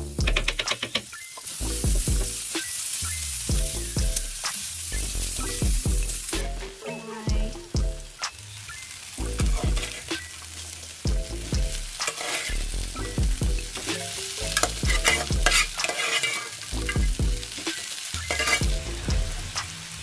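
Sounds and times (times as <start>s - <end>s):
meat sizzling in a frying pan: 0.0s - 6.7s, 7.5s - 20.0s
wooden spoon scraping a pan: 9.8s - 10.1s, 12.0s - 12.7s, 14.6s - 17.0s, 17.7s - 18.7s
spoon clacking against pan: 13.8s - 16.6s, 17.5s - 18.7s.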